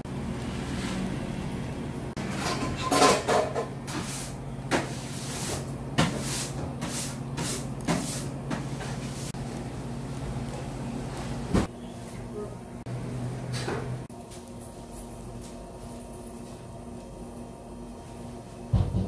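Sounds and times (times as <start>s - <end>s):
knocks and clattering: 18.8s - 19.0s.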